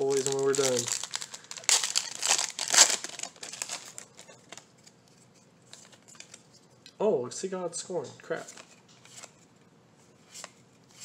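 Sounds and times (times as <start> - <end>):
foil wrapper tearing and crinkling: 0.0 - 4.6.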